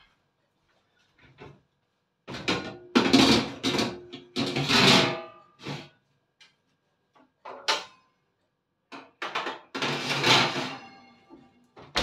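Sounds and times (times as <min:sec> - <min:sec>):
baking tray scraping oven rack: 0:09.8 - 0:10.9.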